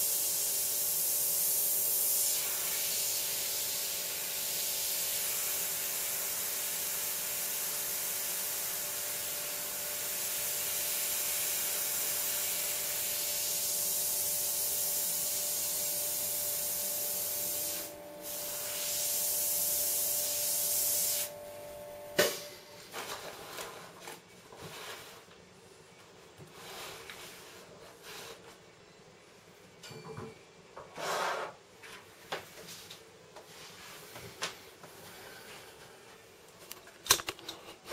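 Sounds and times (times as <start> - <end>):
airbrush air hiss: 0.0 - 21.4.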